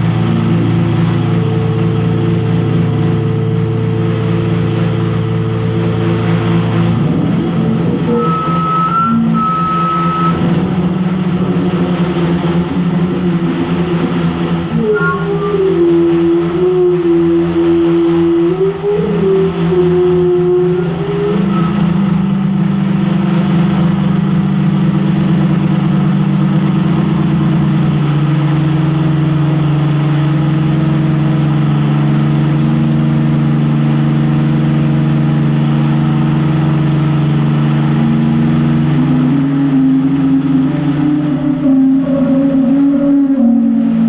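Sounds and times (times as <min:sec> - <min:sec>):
drum feedback drone: 0:00.0 - 0:44.0.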